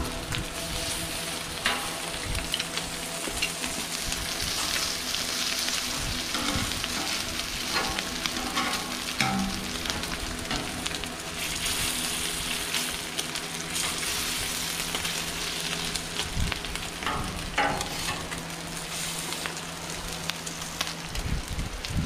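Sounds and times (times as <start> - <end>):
bacon sizzling on a griddle: 0.0 - 22.0
metal tongs clacking: 7.7 - 10.8.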